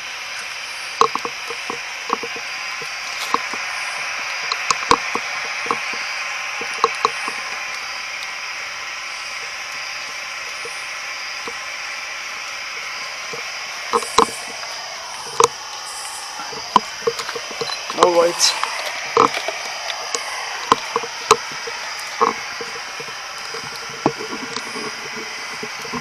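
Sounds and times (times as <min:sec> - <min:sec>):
radio static hiss: 0:00.0 - 0:26.0
sharp clicks and knocks: 0:01.0 - 0:03.7, 0:04.4 - 0:06.0, 0:06.6 - 0:08.3, 0:12.7 - 0:26.0.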